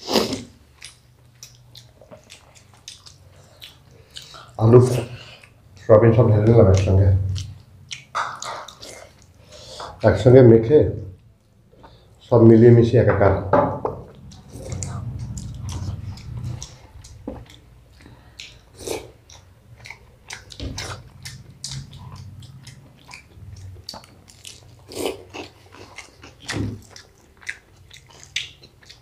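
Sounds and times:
chewing and wet mouth smacks: 0:00.7 - 0:05.6, 0:06.7 - 0:10.0, 0:14.1 - 0:29.0.

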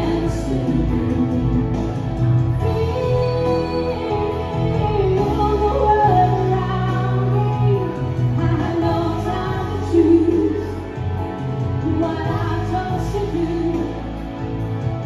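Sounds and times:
women singing into microphones: 0:00.0 - 0:14.5
instrumental backing music: 0:00.0 - 0:15.0.

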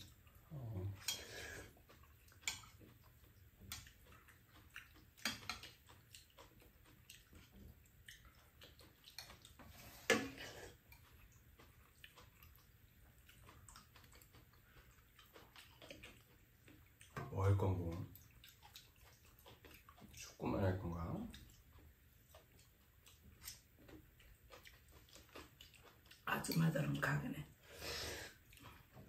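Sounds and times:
chopsticks clicking against bowls: 0:01.9 - 0:03.0, 0:03.7 - 0:07.5
slurp: 0:09.3 - 0:10.8
noodles being eaten: 0:21.3 - 0:26.2.

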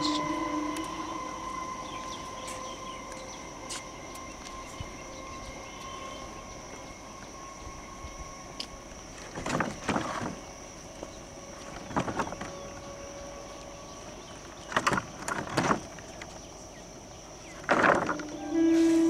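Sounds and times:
thin high tone: 0:00.0 - 0:08.7, 0:18.1 - 0:19.0.

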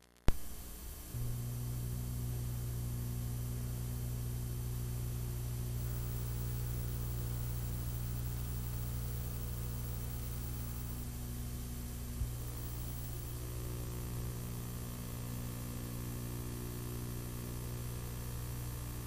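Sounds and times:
tape playback pop: 0:00.0 - 0:01.4
low mains hum: 0:00.0 - 0:19.0
tape hiss: 0:00.0 - 0:19.0.

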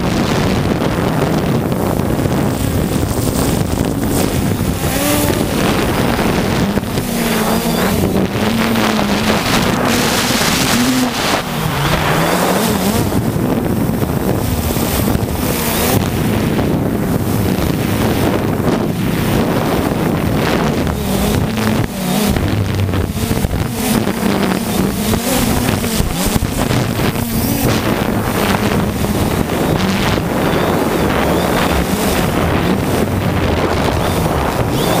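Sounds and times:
drone propellers buzzing: 0:00.0 - 0:35.0
wind on microphone: 0:00.0 - 0:35.0.

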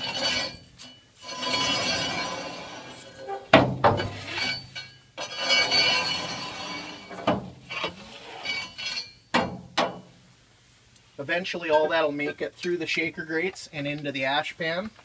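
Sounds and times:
metal scraper rasping: 0:00.0 - 0:09.2
metal knocks: 0:03.3 - 0:04.2, 0:09.3 - 0:10.1.

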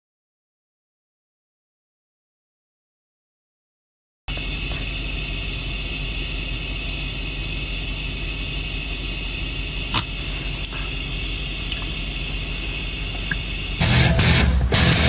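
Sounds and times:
car engine idling: 0:04.3 - 0:15.0
steady hiss: 0:07.4 - 0:13.9.

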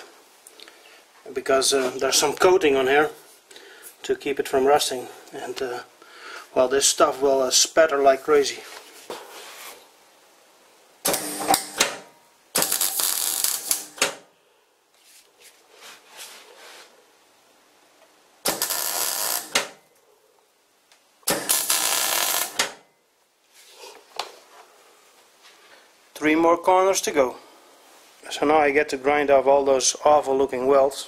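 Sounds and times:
welder arc crackling: 0:11.1 - 0:14.3, 0:18.4 - 0:19.8, 0:21.2 - 0:22.9.

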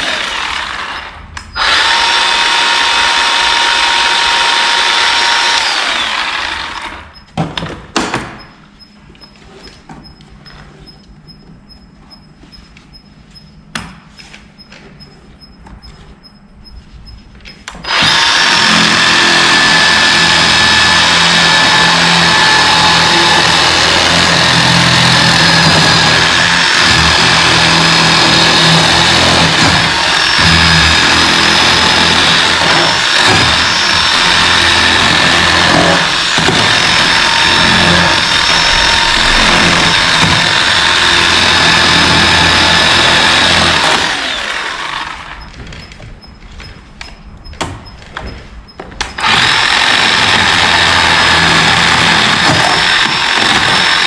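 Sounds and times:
chainsaw cutting wood: 0:00.0 - 0:07.0, 0:17.8 - 0:45.5, 0:49.0 - 0:54.0.

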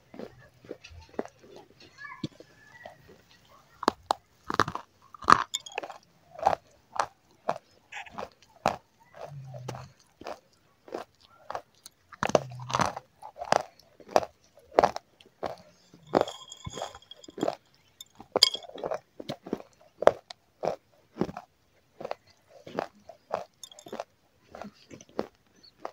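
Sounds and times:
wet chewing mouth clicks: 0:03.9 - 0:15.7.

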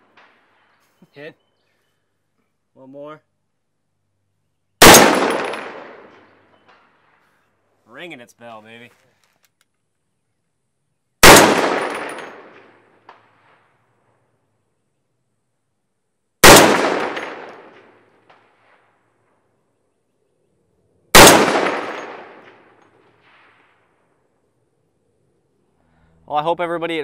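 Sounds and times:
rifle shots: 0:04.8 - 0:07.2, 0:11.2 - 0:13.9, 0:16.4 - 0:19.0, 0:21.1 - 0:24.0
distant clang of bullet on steel: 0:11.6 - 0:13.2.

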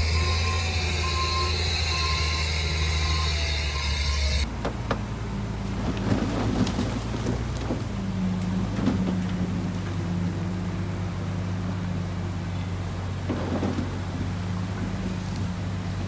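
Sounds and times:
reversing alarm beeps: 0:00.0 - 0:04.5
heavy machinery diesel engines: 0:00.0 - 0:16.0
machine clanks and rattles: 0:05.7 - 0:10.2, 0:13.2 - 0:14.8.

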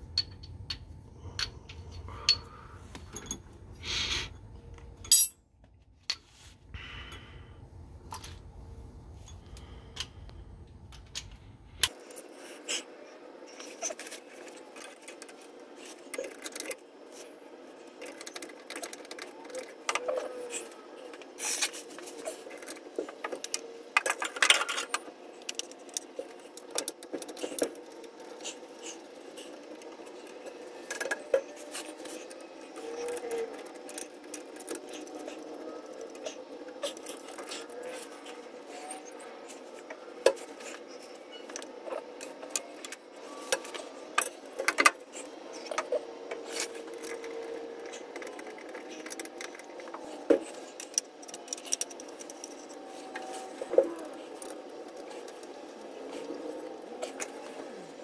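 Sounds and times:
faint steady hum: 0:00.0 - 0:58.0
hand tools clinking on metal: 0:05.0 - 0:05.4.

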